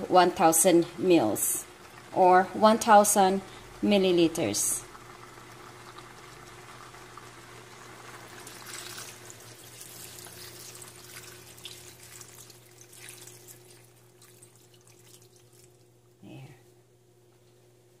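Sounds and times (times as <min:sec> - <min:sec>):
water pouring into a wok: 0:04.9 - 0:15.8.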